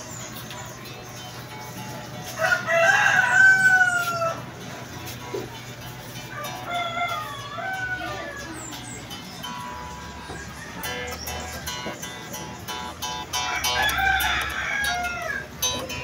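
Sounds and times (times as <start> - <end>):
rooster crowing: 2.4 - 4.5, 6.3 - 8.6, 9.9 - 11.2, 13.4 - 15.6.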